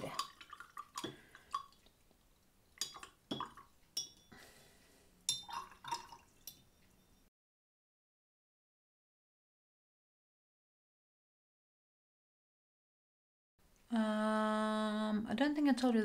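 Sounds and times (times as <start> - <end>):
brush clinking in glass jar: 2.8 - 4.3, 5.3 - 7.3.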